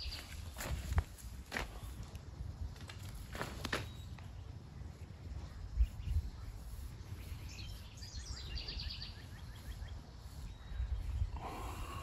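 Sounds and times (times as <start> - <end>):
songbird trilling: 7.2 - 11.3.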